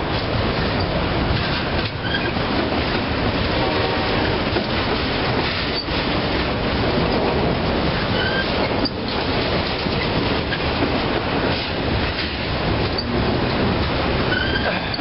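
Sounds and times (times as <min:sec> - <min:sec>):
clickety-clack over rail joints: 0:00.0 - 0:15.0
train wheels rumbling on rails: 0:00.0 - 0:15.0
high wheel squeal: 0:02.0 - 0:02.4, 0:08.1 - 0:08.6, 0:14.3 - 0:15.0.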